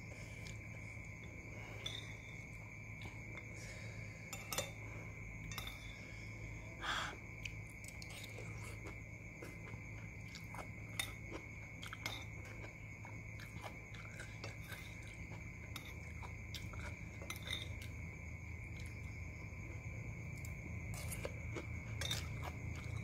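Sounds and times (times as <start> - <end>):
chewing and biting: 7.4 - 17.9.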